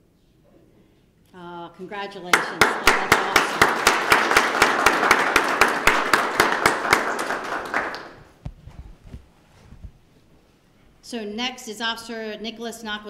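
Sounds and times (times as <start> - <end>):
loud regular hand claps: 2.2 - 8.4
applause from small audience: 2.3 - 8.3.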